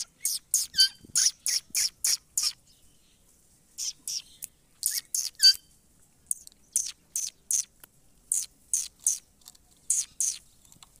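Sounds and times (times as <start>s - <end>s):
parakeet chirping: 0.0s - 2.6s, 3.8s - 5.7s, 6.3s - 7.7s, 8.3s - 9.3s, 9.9s - 10.4s.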